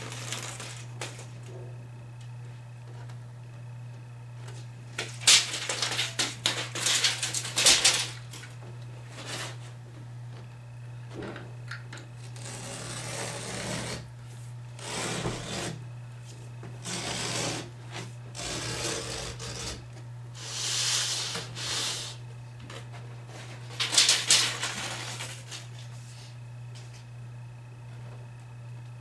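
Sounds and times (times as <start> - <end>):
knife rasping through carpet: 12.4 - 14.0, 14.8 - 15.8, 16.8 - 17.7, 18.4 - 19.8.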